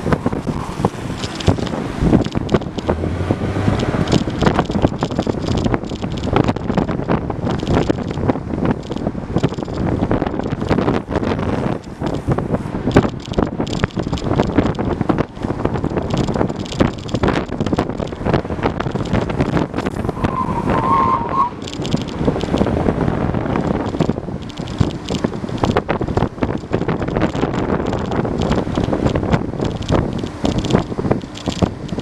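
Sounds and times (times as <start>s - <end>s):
skateboard wheels rolling on asphalt: 0.0s - 32.0s
wind buffeting microphone: 0.0s - 32.0s
high squeal: 20.1s - 21.6s.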